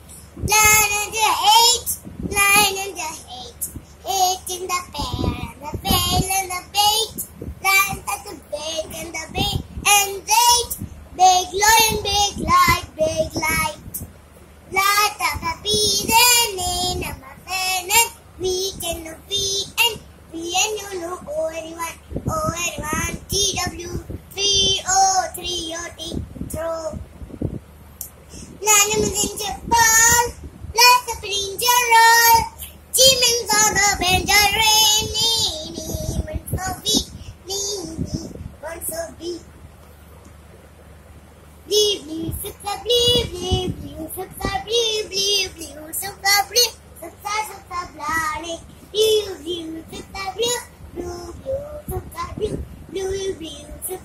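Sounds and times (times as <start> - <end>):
young child singing: 0.0 - 27.1, 28.3 - 39.5, 41.6 - 54.0.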